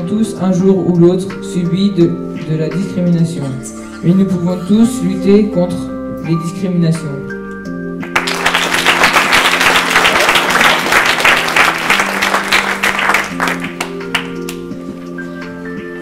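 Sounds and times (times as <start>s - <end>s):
held keyboard notes: 0.0s - 16.0s
audience applause: 8.1s - 14.3s.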